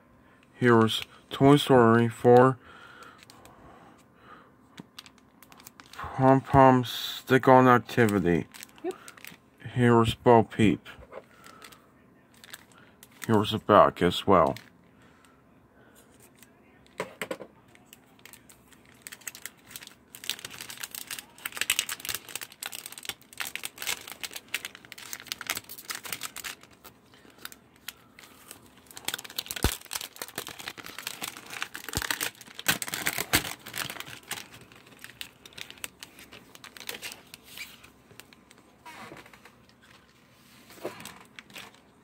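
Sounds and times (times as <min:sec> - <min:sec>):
plastic packaging crinkling: 0:04.8 - 0:06.0, 0:07.8 - 0:09.4, 0:11.3 - 0:13.6, 0:17.7 - 0:42.0.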